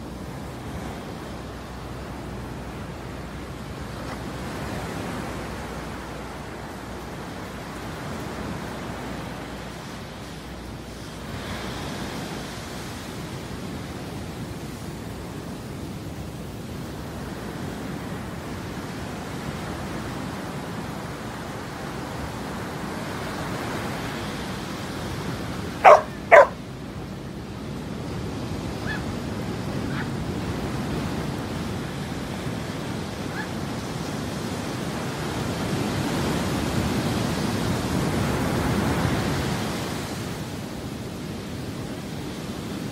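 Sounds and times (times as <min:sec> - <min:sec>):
surf washing: 0:00.0 - 0:42.9
dog barking: 0:25.8 - 0:26.6, 0:29.9 - 0:30.1, 0:33.3 - 0:33.5
dog yipping: 0:25.8 - 0:26.6, 0:28.8 - 0:29.0, 0:29.9 - 0:30.1, 0:33.3 - 0:33.5.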